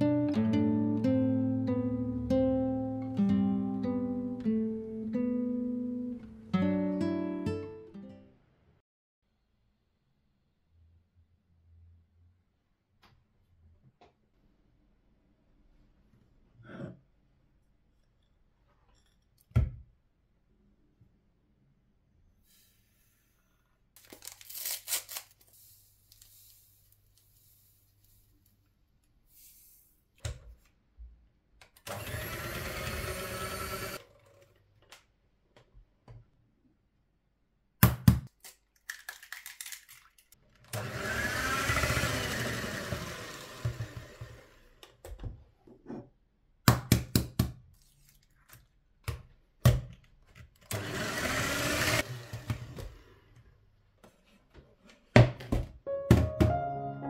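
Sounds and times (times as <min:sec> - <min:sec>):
electric hand mixer beating dough: 0:31.9 - 0:34.0, 0:40.8 - 0:44.7, 0:50.7 - 0:52.9.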